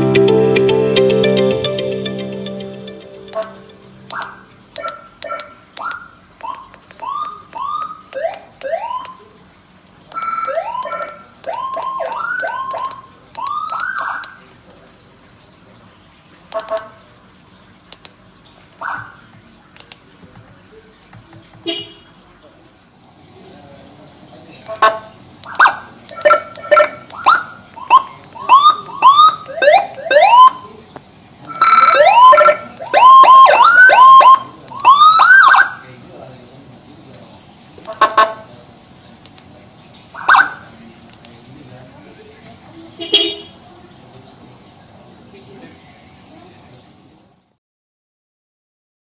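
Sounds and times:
electronic siren whoops: 0:10.2 - 0:14.3, 0:25.5 - 0:30.7, 0:31.5 - 0:35.8.

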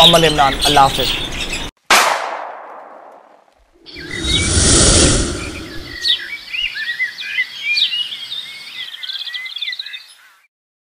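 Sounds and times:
low rumble: 0:03.9 - 0:06.2
tropical bird calls: 0:05.7 - 0:10.5.

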